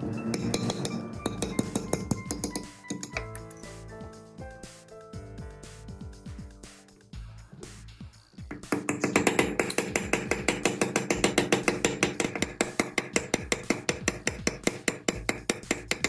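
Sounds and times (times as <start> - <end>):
hammer tapping on steel: 0.3 - 3.6, 8.5 - 16.0.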